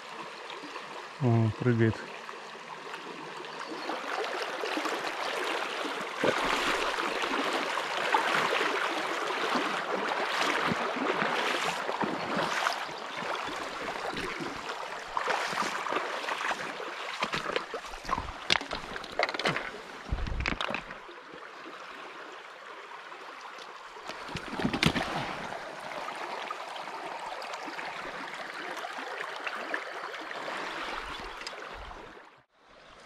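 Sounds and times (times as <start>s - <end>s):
river water rushing: 2.1s - 32.2s.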